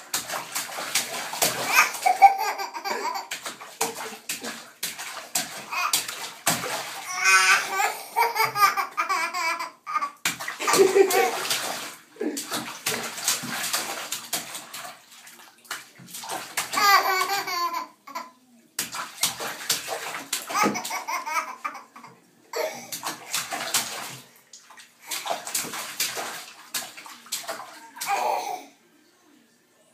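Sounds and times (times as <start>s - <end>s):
baby splashing bathwater: 0.0s - 28.8s
baby giggling: 1.7s - 3.3s, 7.1s - 11.4s, 16.8s - 18.3s, 20.5s - 22.9s.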